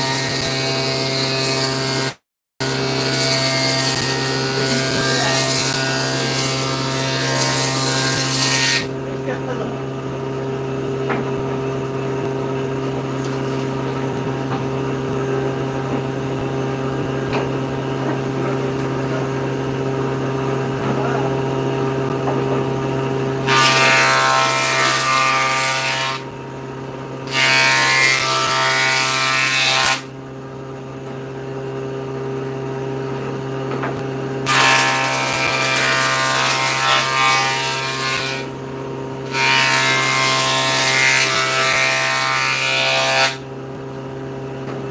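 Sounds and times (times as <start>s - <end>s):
saw blade cutting wood: 0.0s - 9.0s, 23.4s - 26.6s, 27.2s - 30.1s, 34.4s - 38.6s, 39.2s - 43.5s
table saw motor humming: 0.0s - 44.9s.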